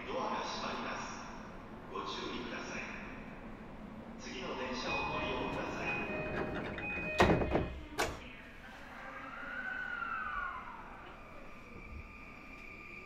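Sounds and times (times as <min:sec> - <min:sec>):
train doors sliding shut: 0:04.8 - 0:08.3
loud door thud: 0:06.4 - 0:08.2.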